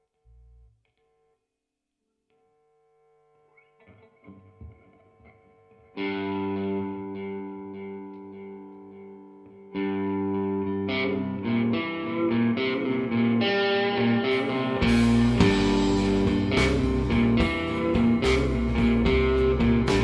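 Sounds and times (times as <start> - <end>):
electric guitar riff: 3.4 - 20.0
bass guitar: 9.8 - 20.0
drums with cymbal crashes: 14.9 - 20.0.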